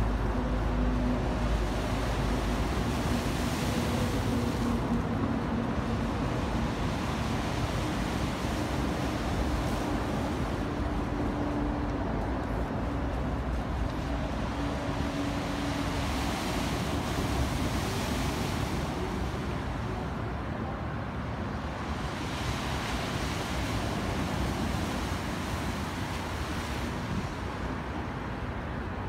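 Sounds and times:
wind rumble on microphone: 0.0 - 29.0
waves breaking on rocks: 21.5 - 27.9.

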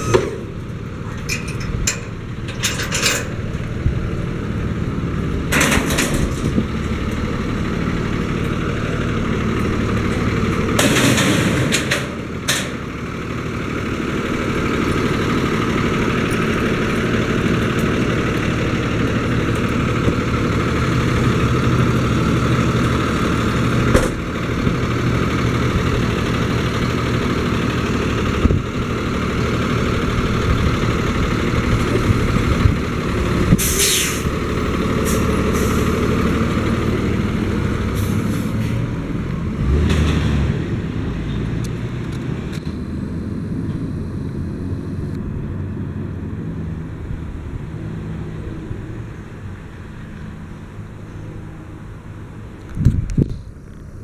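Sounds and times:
truck engine idling: 0.0 - 39.8
truck pulling away: 0.0 - 54.0
air brakes hissing: 33.6 - 34.3, 35.0 - 36.0.

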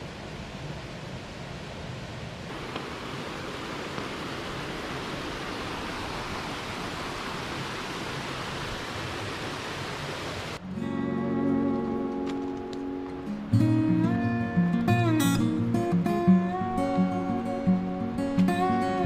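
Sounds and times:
stream cascading over boulders: 0.0 - 10.6
acoustic guitar music: 10.6 - 19.0.

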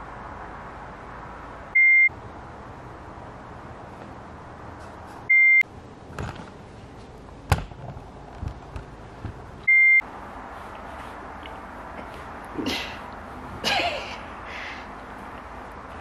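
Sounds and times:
short electronic beeps: 1.8 - 2.1, 5.3 - 5.6, 9.7 - 10.0.

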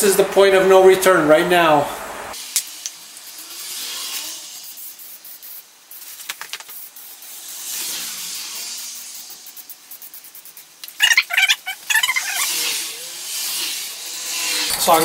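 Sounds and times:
aerosol spray hissing: 4.2 - 7.2, 8.7 - 12.8.

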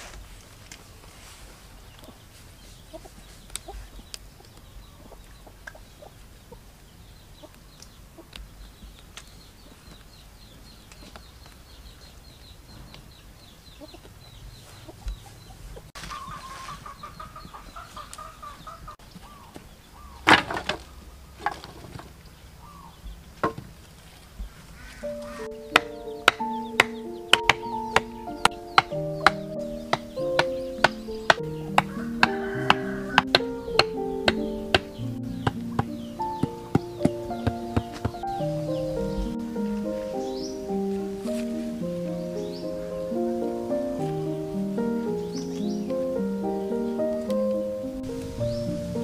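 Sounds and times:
chicken clucking: 1.9 - 6.7, 13.6 - 19.6, 24.5 - 41.1
wooden sticks knocking on ground: 20.2 - 22.2, 23.4 - 23.8, 25.0 - 38.5.

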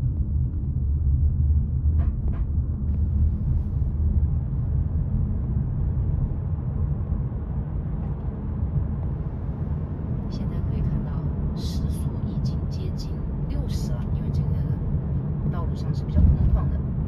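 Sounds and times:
road and tyre noise in car: 0.0 - 17.0.

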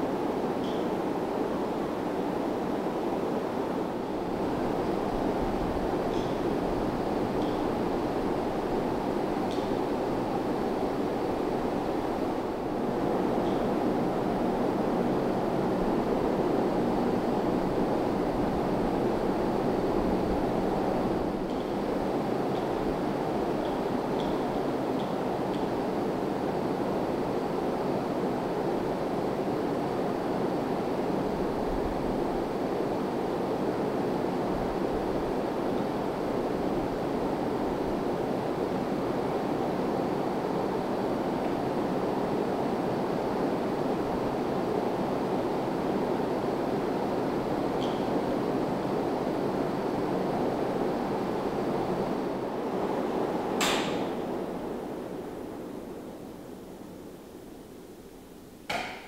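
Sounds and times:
ceiling fans whirring: 0.0 - 59.0
sharp click: 53.6 - 54.1.

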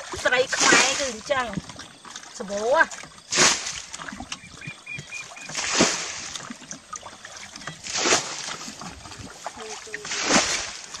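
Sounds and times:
bucket sloshing water: 0.0 - 11.0
water splashing: 0.0 - 11.0.

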